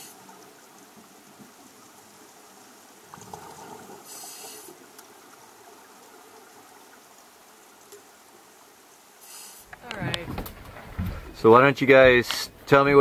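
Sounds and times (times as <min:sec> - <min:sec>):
steady underwater hiss: 0:00.0 - 0:10.0
exhaled bubbles underwater: 0:03.0 - 0:05.8
scuba regulator hiss: 0:04.0 - 0:04.8, 0:09.2 - 0:09.7.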